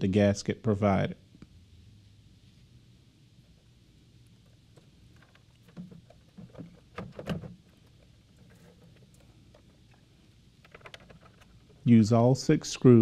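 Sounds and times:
faint steady hum: 0.0 - 13.0
plastic knocks and clicks: 5.2 - 7.6.

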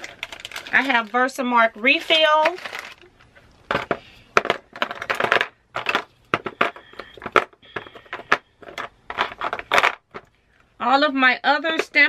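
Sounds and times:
plastic ink pads clattering in a box: 0.0 - 1.2, 3.7 - 10.3.

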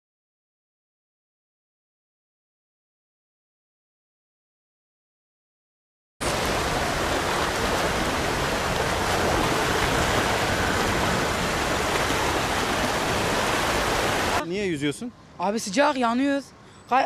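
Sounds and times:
rushing water in a canal: 6.2 - 14.4.

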